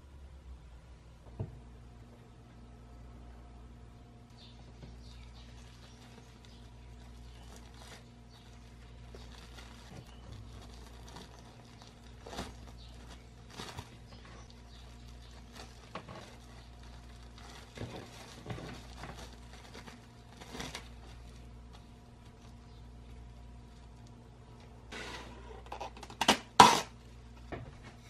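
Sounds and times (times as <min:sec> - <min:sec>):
faint steady hum: 0:00.0 - 0:28.0
cling film crinkling: 0:04.4 - 0:24.8.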